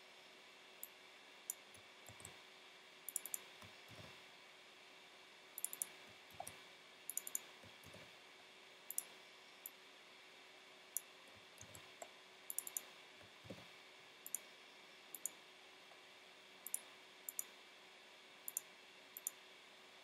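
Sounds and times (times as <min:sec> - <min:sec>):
faint steady hum: 0:00.0 - 0:20.0
computer mouse clicks: 0:00.8 - 0:02.4, 0:03.1 - 0:04.2, 0:05.6 - 0:08.0, 0:08.9 - 0:09.8, 0:11.0 - 0:14.5, 0:15.1 - 0:15.4, 0:16.6 - 0:17.5, 0:18.5 - 0:19.4.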